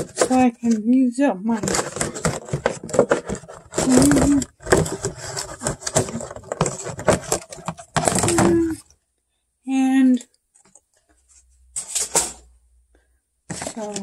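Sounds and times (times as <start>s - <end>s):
plastic containers clattering: 0.0s - 0.8s, 1.5s - 9.0s, 13.4s - 14.0s.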